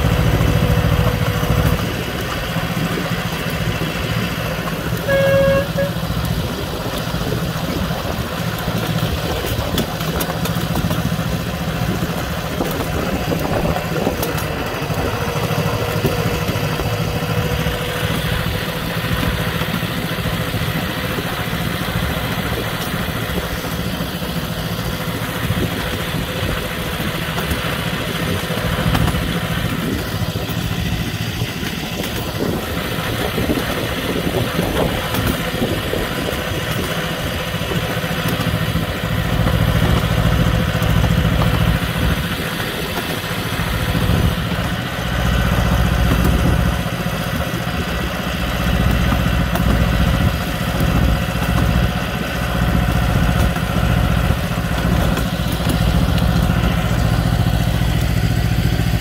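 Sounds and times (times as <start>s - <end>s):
miniature locomotive engine running: 0.0s - 59.0s
train horn toot: 4.6s - 6.5s.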